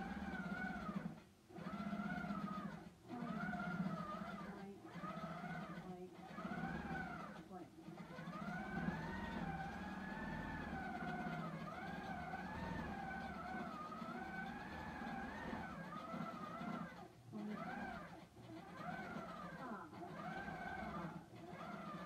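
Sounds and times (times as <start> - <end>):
quilting machine motor whine: 0.0 - 22.0.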